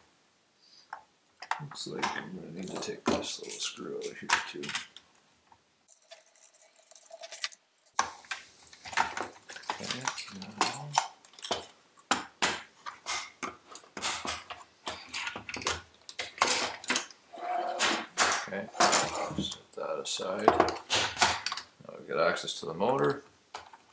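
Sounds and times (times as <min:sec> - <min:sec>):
plastic parts clicking: 0:01.4 - 0:05.2, 0:07.3 - 0:17.2.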